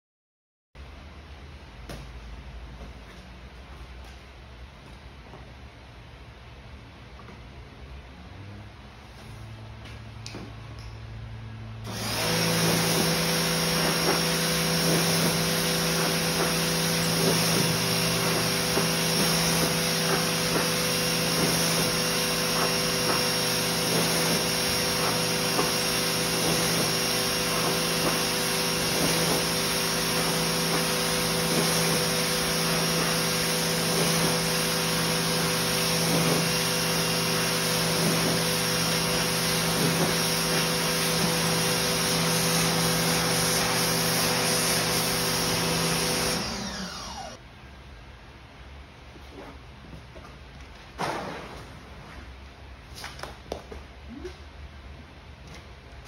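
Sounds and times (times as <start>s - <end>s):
pressure washer pump humming: 11.8s - 47.4s.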